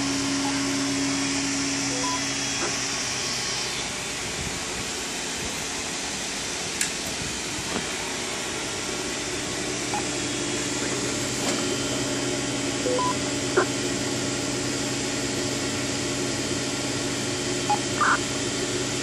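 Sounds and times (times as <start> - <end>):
two-note electronic beep: 1.9 - 2.3, 12.9 - 13.7.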